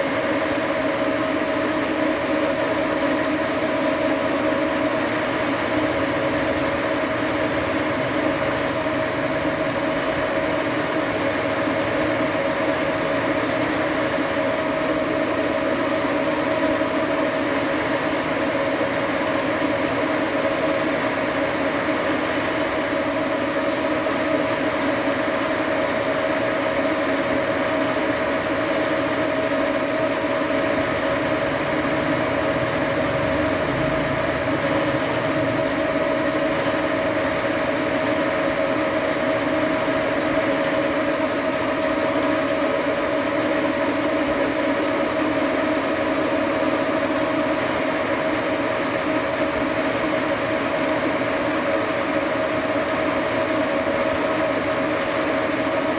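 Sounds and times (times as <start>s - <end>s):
lathe cutting metal whine: 0.0s - 55.9s
faint high whistle: 5.0s - 14.6s, 17.4s - 23.1s, 24.5s - 29.4s, 30.6s - 35.5s, 47.6s - 55.8s.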